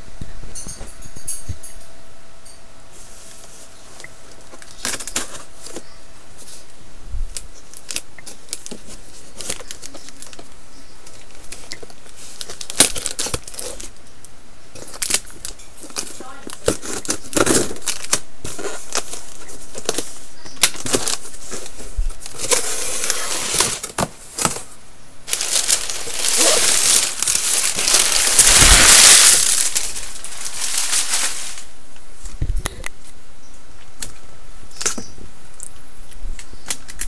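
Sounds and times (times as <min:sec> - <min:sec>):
plastic packaging rustling: 0:07.3 - 0:14.0, 0:14.7 - 0:32.6.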